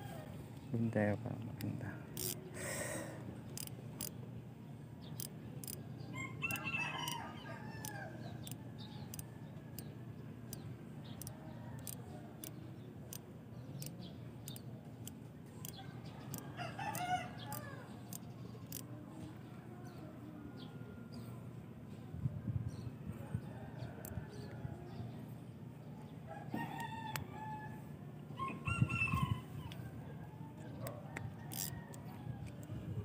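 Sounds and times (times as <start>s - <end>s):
rooster crowing: 6.1s - 8.5s, 16.1s - 17.9s, 26.3s - 29.8s, 31.0s - 32.5s.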